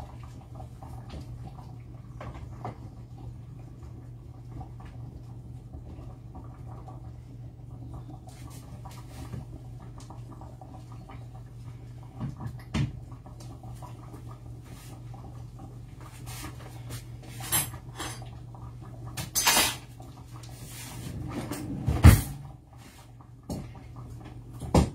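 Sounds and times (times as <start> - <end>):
kitchen knocks and clinks: 19.2 - 19.8.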